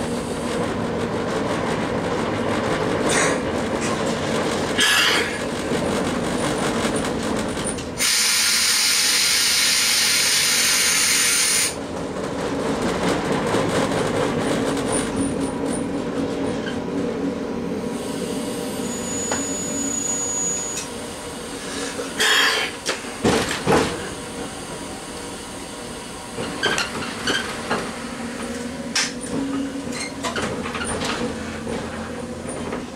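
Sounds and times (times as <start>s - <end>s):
train rumble: 0.0s - 32.9s.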